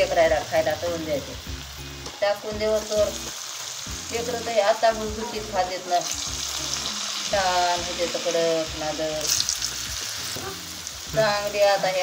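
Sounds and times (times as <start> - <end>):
woman talking: 0.0 - 1.4, 2.2 - 3.2, 4.1 - 9.3, 11.1 - 12.0
oil bubbling and sizzling: 0.0 - 12.0.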